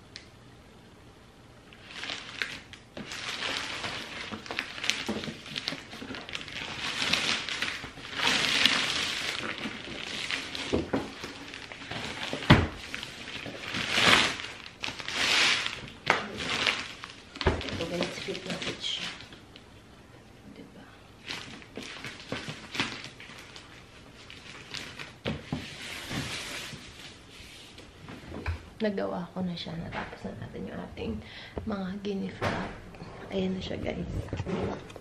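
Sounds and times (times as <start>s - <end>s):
wrapping paper rustling: 1.7s - 19.6s, 21.2s - 28.0s.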